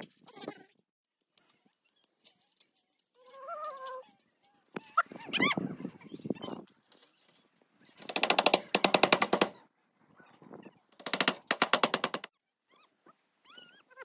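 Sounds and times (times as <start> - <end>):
rapid even rattle: 8.0 - 9.6, 11.0 - 12.3.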